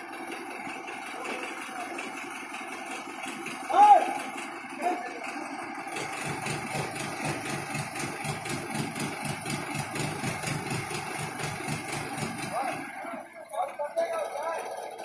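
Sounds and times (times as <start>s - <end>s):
heavy engine idling: 0.0s - 15.0s.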